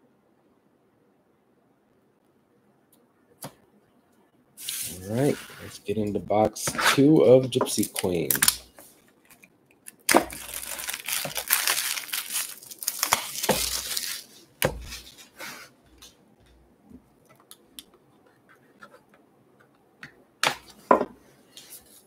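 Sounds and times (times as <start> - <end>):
plastic shrink wrap crinkling: 7.7 - 15.4.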